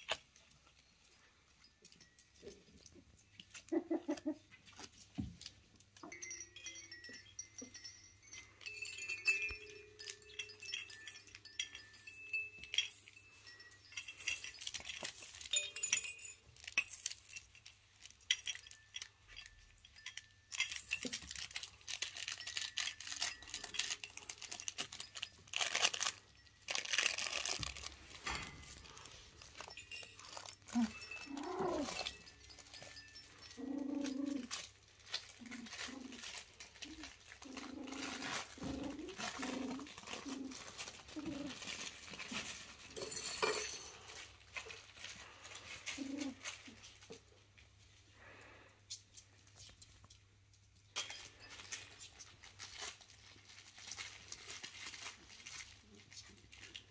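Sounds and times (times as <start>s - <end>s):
rattle toys clinking and jingling: 0.0s - 56.9s
puppies squeaking: 3.5s - 4.5s.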